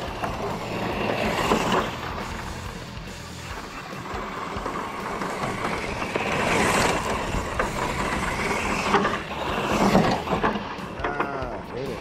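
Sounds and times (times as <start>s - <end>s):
rc truck driving on dirt: 0.0s - 12.0s
wheels spinning throwing dirt: 0.0s - 12.0s.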